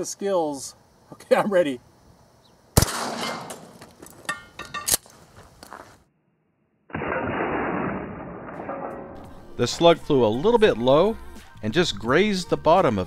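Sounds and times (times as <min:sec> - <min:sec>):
shotgun firing: 0:02.8 - 0:03.8, 0:06.9 - 0:08.9
sharp crack: 0:02.8 - 0:05.1, 0:06.9 - 0:09.2.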